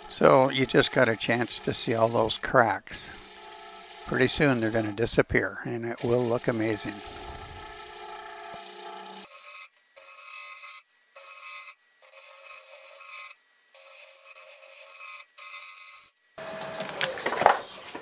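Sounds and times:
scraper rasping on spinning wood: 0:00.0 - 0:05.0, 0:06.0 - 0:13.2
faint lathe whine: 0:00.0 - 0:05.3, 0:05.9 - 0:18.0.

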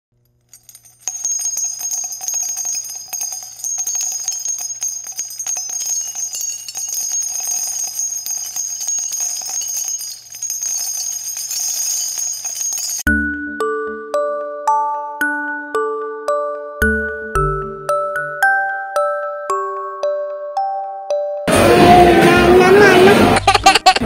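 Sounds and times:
jingling bells: 0:00.4 - 0:13.1.

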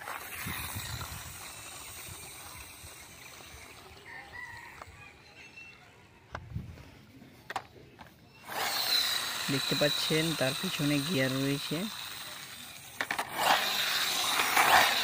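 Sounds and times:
outdoor background noise: 0:00.0 - 0:15.0
rooster crowing: 0:04.0 - 0:05.5.

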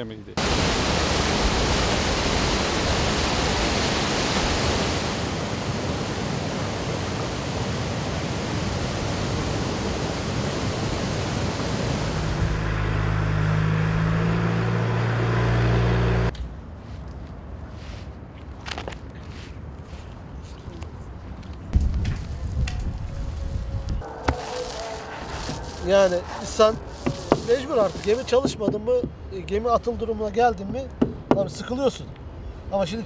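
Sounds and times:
water rushing through gate: 0:00.4 - 0:14.8, 0:24.2 - 0:28.5.

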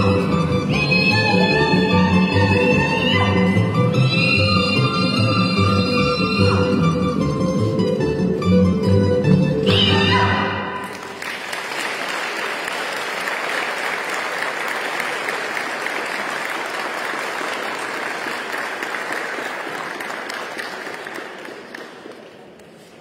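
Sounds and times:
audience applauding: 0:10.8 - 0:22.8.

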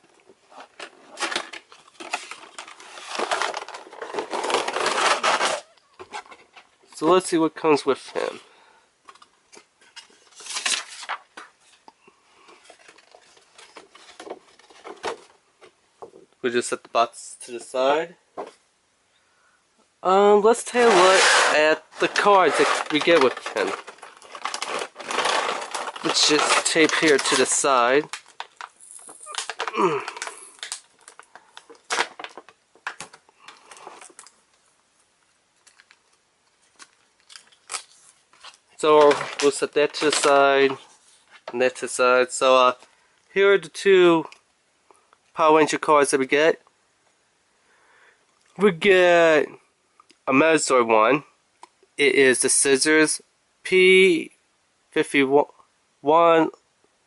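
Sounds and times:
cardboard and plastic rustling: 0:00.0 - 0:07.1, 0:07.8 - 0:16.3, 0:20.6 - 0:34.7, 0:35.5 - 0:42.9
cardboard scraping rustle: 0:00.4 - 0:06.7, 0:20.7 - 0:27.7
plastic bag crinkling: 0:00.6 - 0:05.7, 0:22.0 - 0:34.6, 0:35.6 - 0:40.9.

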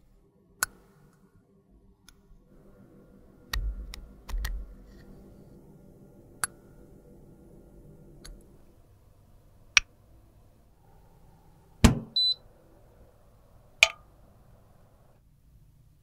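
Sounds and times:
hard thud: 0:11.8 - 0:12.2.

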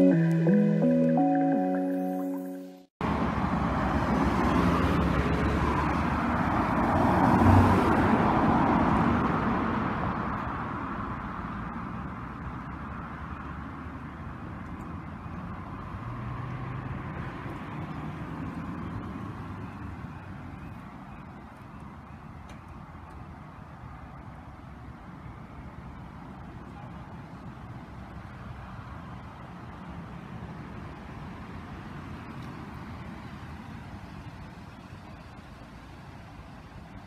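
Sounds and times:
passing traffic: 0:00.0 - 0:37.0
car driving past: 0:03.0 - 0:13.9, 0:15.4 - 0:19.6.

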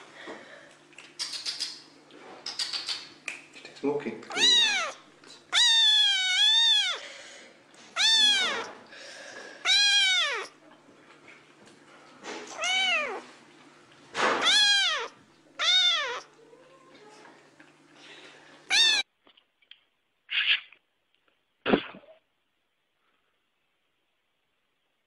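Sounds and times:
kitten meowing loudly: 0:04.3 - 0:07.0, 0:08.0 - 0:08.7, 0:09.6 - 0:10.5, 0:12.5 - 0:13.2, 0:14.4 - 0:16.3, 0:18.7 - 0:19.0.

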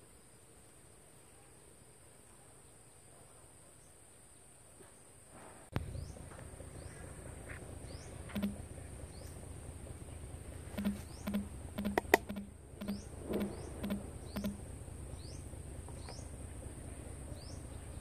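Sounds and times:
short rising chirps: 0:07.9 - 0:08.6, 0:10.7 - 0:15.4
sharp clicks or taps: 0:10.8 - 0:14.6.

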